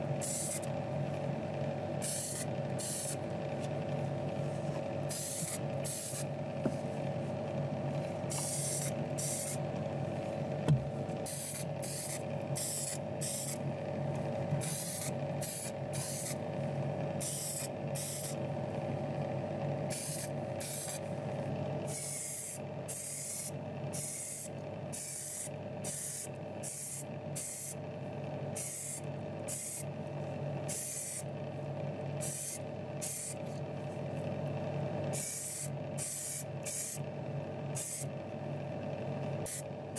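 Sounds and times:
steady motor hum: 0.0s - 39.9s
paint spray hissing: 2.0s - 3.2s, 5.1s - 6.2s, 8.4s - 9.6s, 11.3s - 13.6s, 14.6s - 16.4s, 17.2s - 18.4s, 19.9s - 21.0s, 21.9s - 27.8s, 35.2s - 37.0s, 37.8s - 38.1s.

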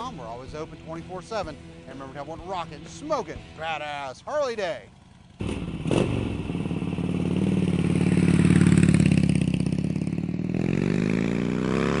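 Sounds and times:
motorcycle engine revving: 4.9s - 12.0s.

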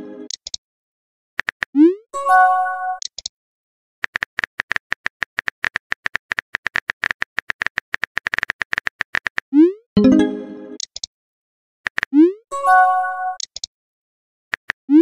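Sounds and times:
phone keyboard clicks: 3.0s - 3.3s, 13.4s - 13.7s.

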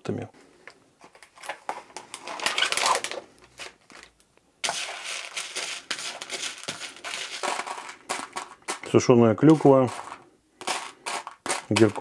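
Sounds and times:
plastic packaging crinkling: 1.0s - 12.0s
spoon scraping granola in plastic tray: 4.6s - 12.0s.

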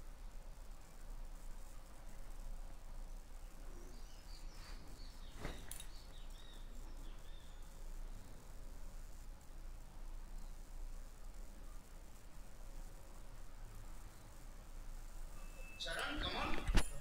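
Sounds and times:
steady low hum: 0.0s - 17.0s
faint high chirps: 2.9s - 8.6s, 10.0s - 17.0s.

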